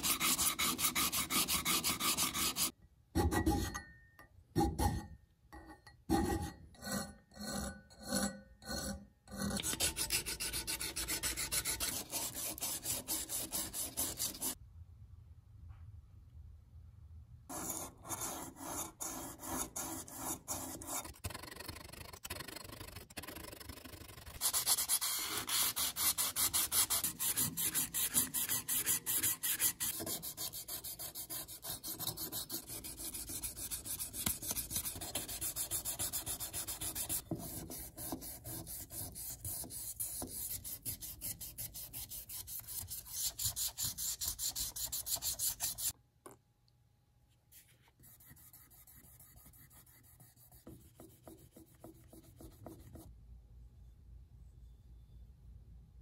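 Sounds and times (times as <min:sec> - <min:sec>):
sandpaper rubbing on metal: 0:00.0 - 0:02.7, 0:09.6 - 0:14.6, 0:24.4 - 0:45.9.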